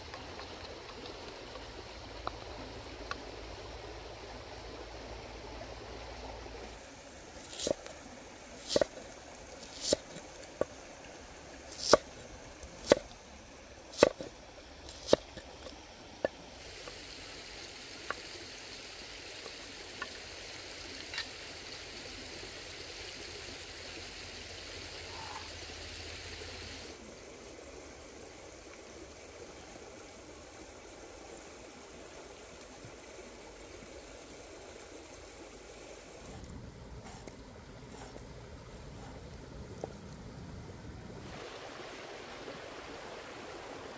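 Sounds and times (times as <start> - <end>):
cleaver chopping on wooden block: 11.7 - 12.0
stream rushing: 40.5 - 43.9.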